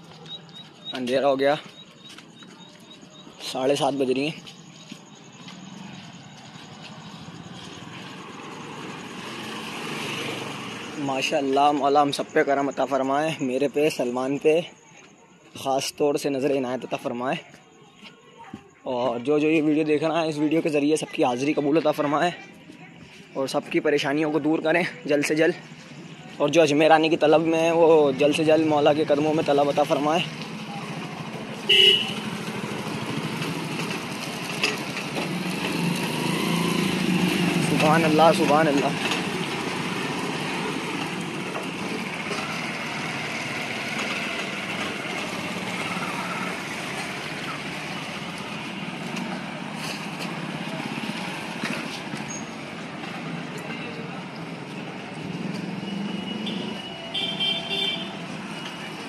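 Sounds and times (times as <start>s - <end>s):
motorcycles riding past: 5.5s - 11.8s, 29.3s - 59.0s
loud horn beep: 31.7s - 32.4s, 55.9s - 58.3s.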